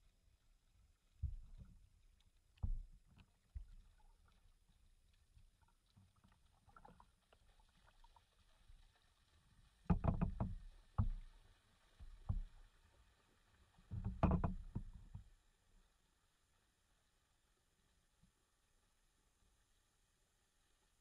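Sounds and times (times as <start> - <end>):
paddle knocking against hull: 9.9 - 11.2, 13.9 - 15.2.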